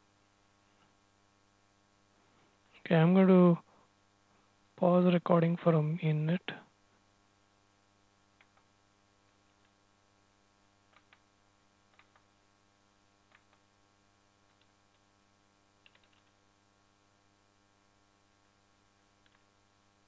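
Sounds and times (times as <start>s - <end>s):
faint electrical hum: 0.0s - 20.0s
faint clicks: 19.2s - 19.5s.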